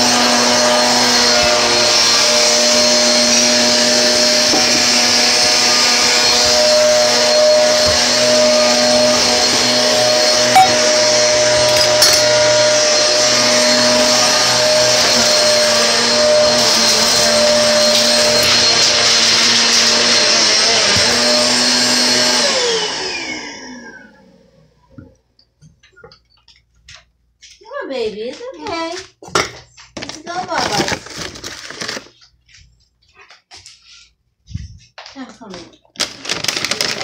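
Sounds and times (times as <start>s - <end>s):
electric motor appliance running: 0.0s - 24.8s.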